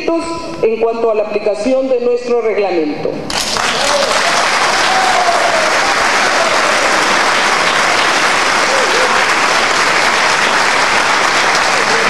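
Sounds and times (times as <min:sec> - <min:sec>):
sustained applause: 0:03.3 - 0:12.0.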